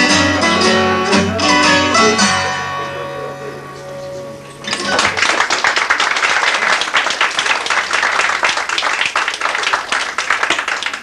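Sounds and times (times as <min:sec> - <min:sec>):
audience clapping: 0:04.6 - 0:11.0.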